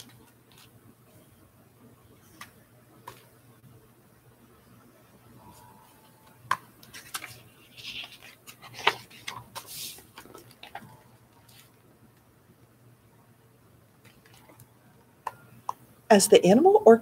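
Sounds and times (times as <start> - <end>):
book pages turning: 0.0 - 0.8, 6.5 - 11.8
paper rustles: 6.8 - 11.7.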